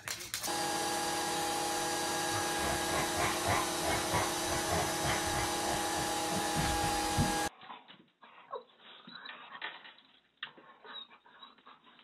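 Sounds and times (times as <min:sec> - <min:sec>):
small electric motor whining: 0:00.4 - 0:07.5.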